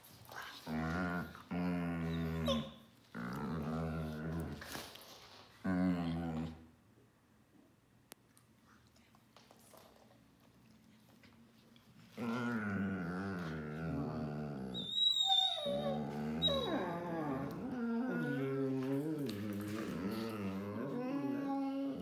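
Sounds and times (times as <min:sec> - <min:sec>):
dogs howling growl: 0:12.2 - 0:22.0
dog high-pitched squeal: 0:14.7 - 0:17.0.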